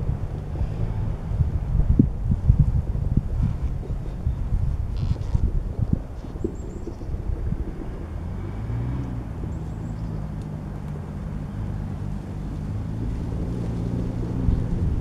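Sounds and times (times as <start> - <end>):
low engine hum: 0.0 - 15.0
wind rumbling on microphone: 0.0 - 15.0.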